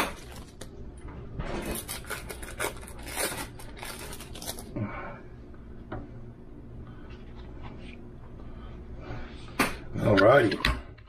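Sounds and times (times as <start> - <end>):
plastic wrapper crinkling: 0.0 - 0.8, 1.6 - 4.7.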